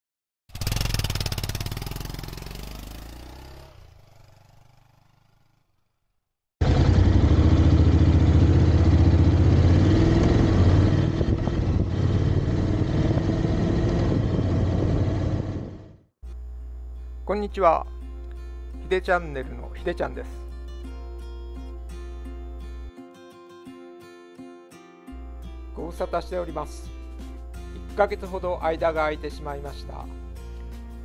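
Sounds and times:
motorcycle engine accelerating: 0.5s - 5.9s, 6.6s - 16.1s.

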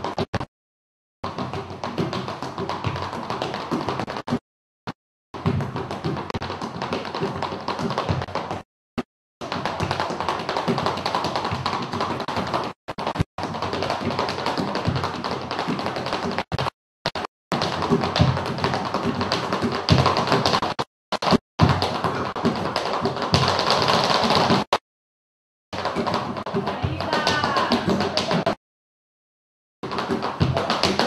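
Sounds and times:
shoes tapping on wooden stage: 1.2s - 4.4s, 5.4s - 8.6s, 9.4s - 24.8s, 25.8s - 28.6s, 29.8s - 31.0s.

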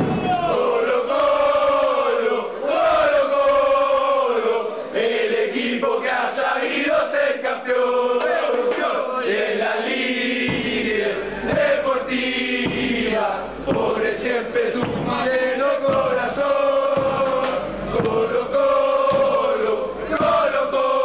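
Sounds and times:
deep drum beating: 0.0s - 0.7s, 10.4s - 20.8s
drum beating: 0.0s - 1.9s, 10.4s - 21.0s
crowd chanting in unison: 0.0s - 21.0s.

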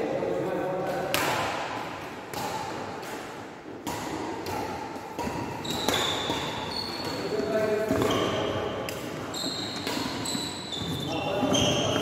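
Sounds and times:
racket hitting shuttlecock: 0.8s - 12.0s
sneakers squeaking: 3.8s - 12.0s.

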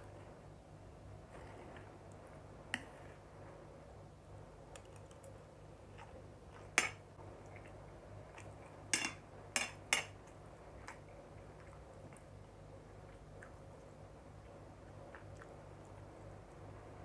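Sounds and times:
cutlery clinking against plate: 8.9s - 10.2s.

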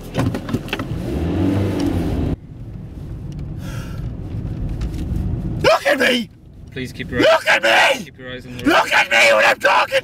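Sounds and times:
road rumble: 0.0s - 10.0s
car engine revving: 0.2s - 3.5s.

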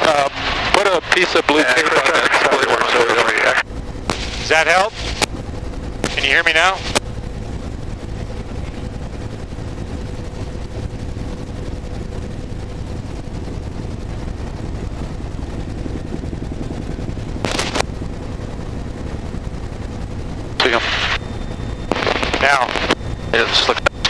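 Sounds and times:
helicopter rotor and turbine noise: 0.0s - 24.0s
burst of noise: 4.1s - 5.2s.

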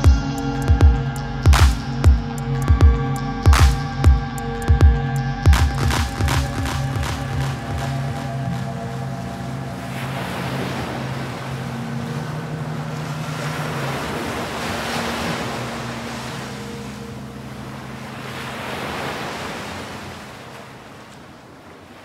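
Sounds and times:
gentle surf on beach: 5.9s - 22.0s.

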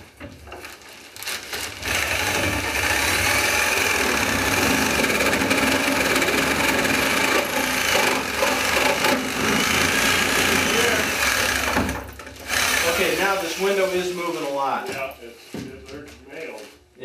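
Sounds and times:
reciprocating saw cutting wood: 1.8s - 14.8s.

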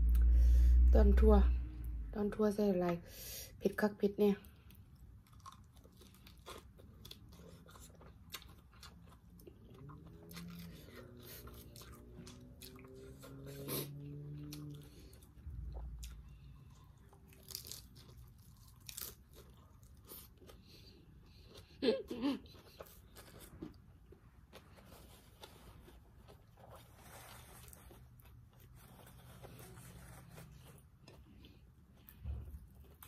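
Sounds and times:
low hum: 0.0s - 3.2s
chewing crunchy lettuce: 4.4s - 33.0s.

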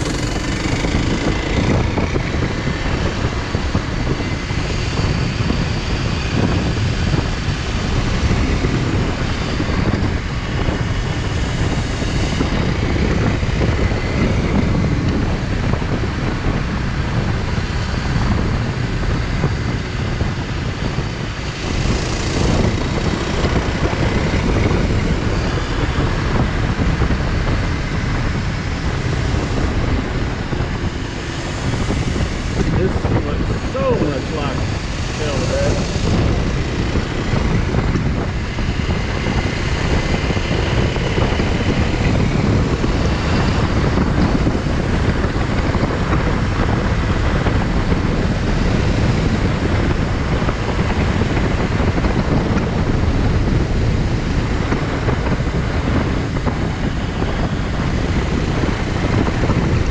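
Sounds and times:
motorcycle engine running: 0.0s - 59.9s
wind rumble on microphone: 0.0s - 59.9s.

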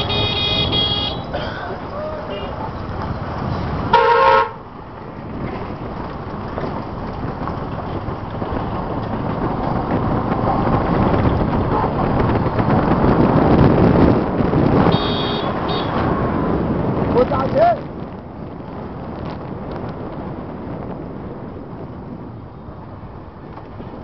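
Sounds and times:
vehicle horn toot: 0.0s - 1.3s, 3.9s - 4.6s, 14.9s - 16.0s
street and traffic rumble: 0.0s - 24.0s.

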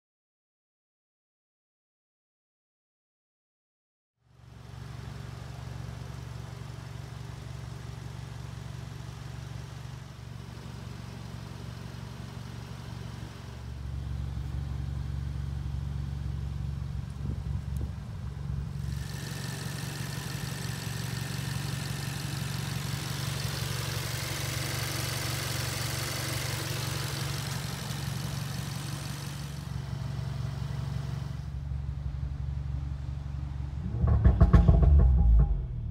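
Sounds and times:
car engine idling: 4.3s - 35.9s.

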